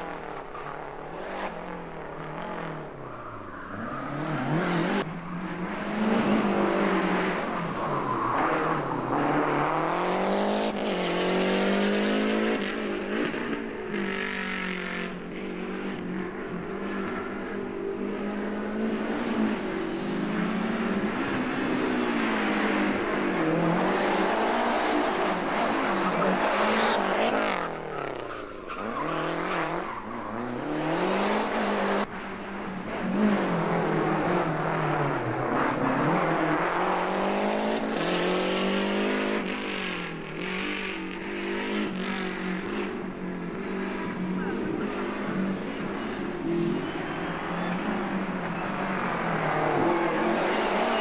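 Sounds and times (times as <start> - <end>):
rally car engines accelerating: 0.0 - 51.0.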